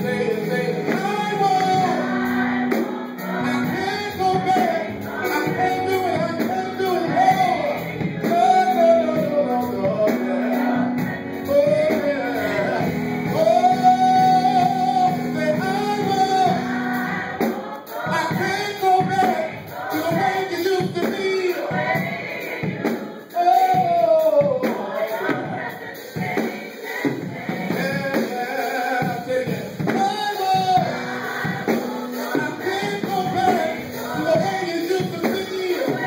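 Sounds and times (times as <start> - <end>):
man singing into a microphone: 0.0 - 2.1, 3.2 - 16.8, 18.1 - 21.8, 23.3 - 25.4, 27.7 - 31.1, 32.1 - 36.0
choir voices: 0.0 - 36.0
instrumental backing: 0.0 - 36.0.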